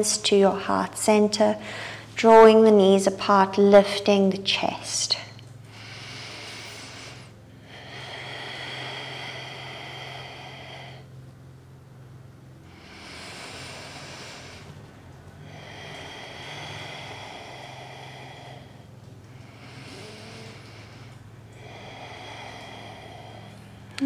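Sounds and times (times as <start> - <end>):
low hum: 0.0 - 24.0
woman breathing deeply: 1.5 - 2.2, 5.3 - 24.0.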